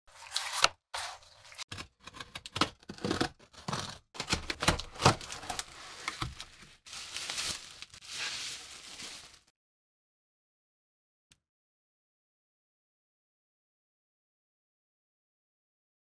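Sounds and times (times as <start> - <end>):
cardboard box tearing: 0.1 - 9.4
bubble wrap crinkling: 3.0 - 9.5.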